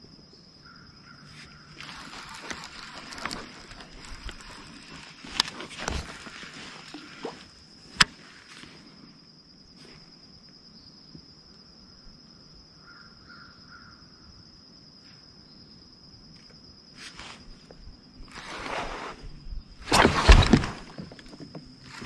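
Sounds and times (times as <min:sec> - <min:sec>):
faint crow caws: 0:00.6 - 0:01.8, 0:12.8 - 0:14.3.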